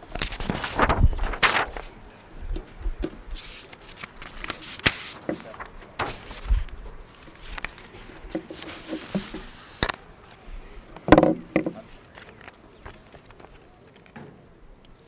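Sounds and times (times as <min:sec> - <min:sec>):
knocks and rustles on microphone: 0:08.3 - 0:10.0, 0:11.0 - 0:11.9.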